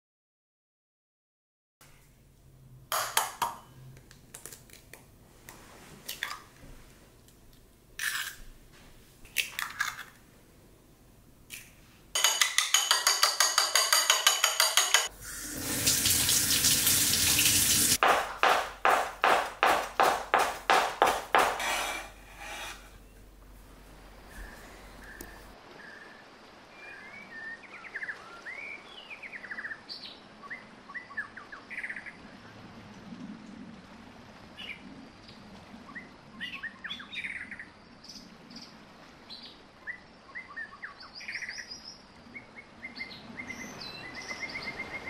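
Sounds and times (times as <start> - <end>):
chopsticks beating egg in bowl: 12.2 - 15.1, 18.0 - 22.1
utensils clattering: 12.2 - 15.1
tap running: 15.4 - 21.7
knife chopping on wooden board: 18.0 - 22.6.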